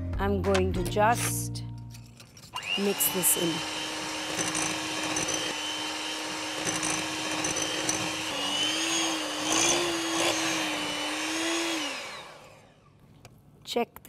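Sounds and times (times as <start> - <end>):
electric hand mixer whipping: 2.5 - 12.9.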